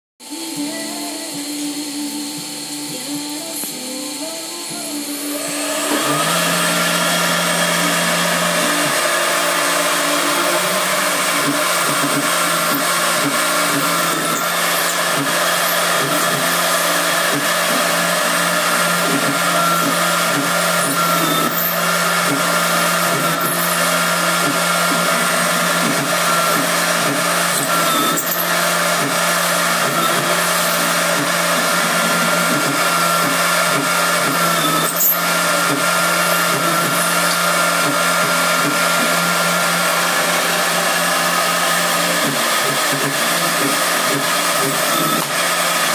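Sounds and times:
drill cutting metal plate: 0:00.2 - 0:45.9
mill spindle high whine: 0:00.2 - 0:45.9.

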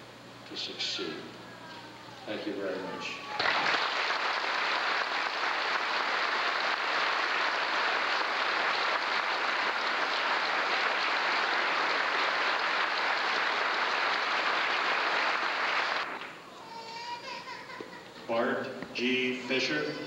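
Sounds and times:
audience applauding: 0:03.4 - 0:16.4.

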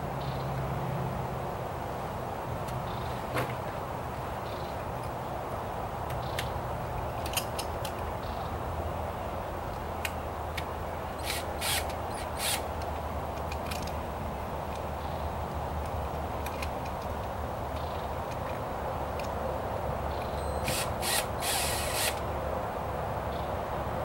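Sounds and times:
small clicks: 0:09.7 - 0:14.0, 0:15.8 - 0:19.4
cordless drill driving screws: 0:11.2 - 0:12.7, 0:20.6 - 0:22.2.

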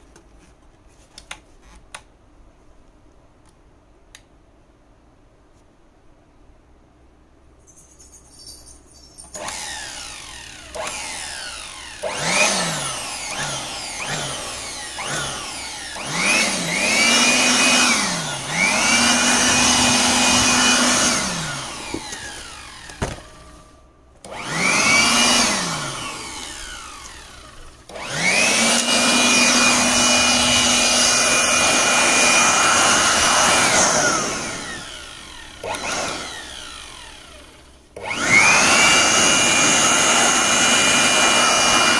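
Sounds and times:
electric blower motor whine: 0:09.4 - 0:41.9.

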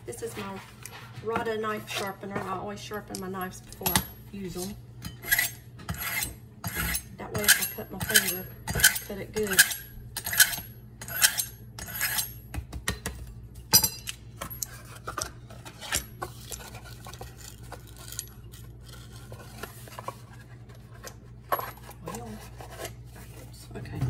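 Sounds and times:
knife scraping through sharpener: 0:04.6 - 0:12.4
metallic clink: 0:13.7 - 0:14.7.

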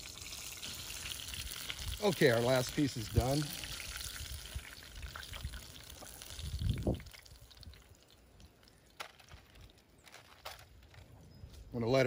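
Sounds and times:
hot oil bubbling: 0:00.0 - 0:09.0.

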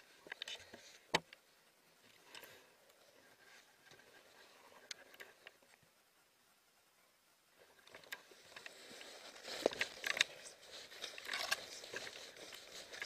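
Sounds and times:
clothing rustling: 0:08.2 - 0:13.0
footsteps crunching in snow: 0:08.3 - 0:13.0.

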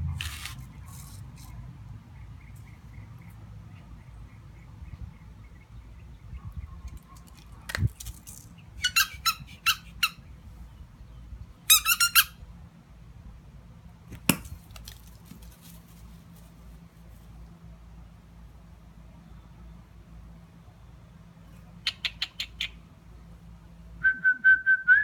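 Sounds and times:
squeaky ball squeaks: 0:08.8 - 0:10.2, 0:11.7 - 0:12.3.

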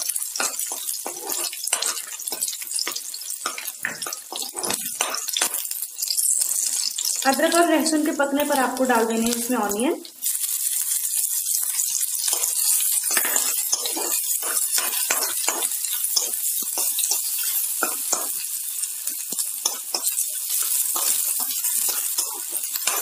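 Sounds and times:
onion sizzling in hot oil: 0:00.0 - 0:23.0
steel spoon scraping pan: 0:00.4 - 0:02.9, 0:12.2 - 0:18.4.

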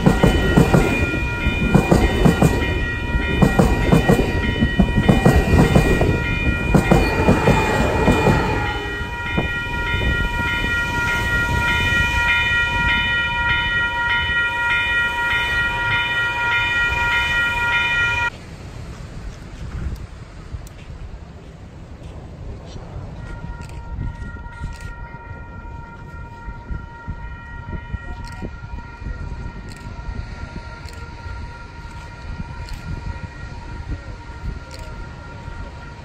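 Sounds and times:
train wheels clattering: 0:00.0 - 0:17.3
high ringing tones: 0:00.0 - 0:18.3.

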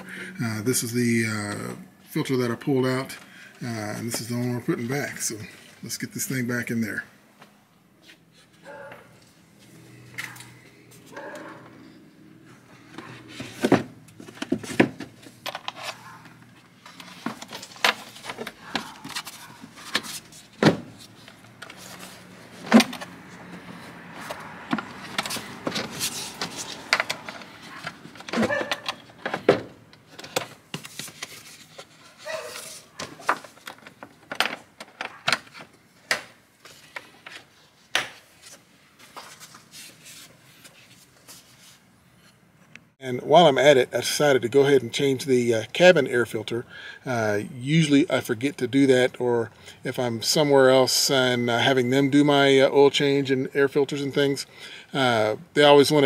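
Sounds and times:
plastic clatter and knocks: 0:33.0 - 0:36.3.

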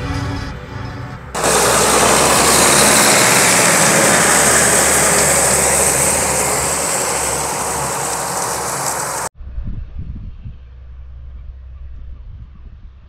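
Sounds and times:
tractor diesel engine under load: 0:00.0 - 0:09.3.

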